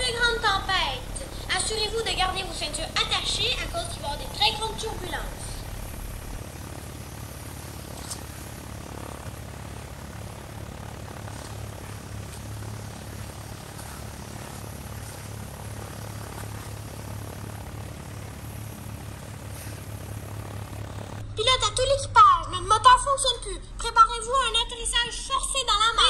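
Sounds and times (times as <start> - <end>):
aircraft engine drone: 0.0 - 26.0.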